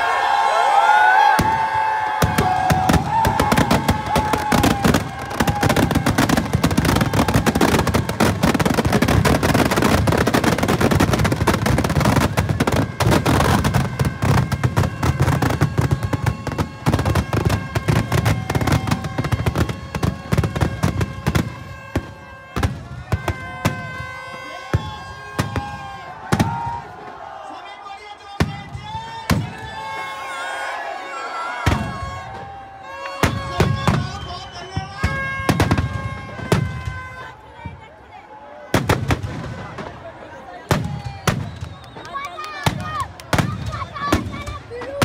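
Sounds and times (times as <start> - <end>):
firecrackers cracking and banging: 1.4 - 27.1, 38.7 - 45.0.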